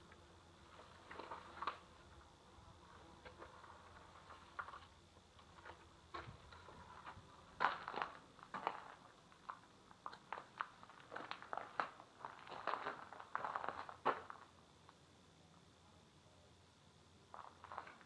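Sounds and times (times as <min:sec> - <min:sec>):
footsteps scuffing and clicking: 0:03.2 - 0:14.4.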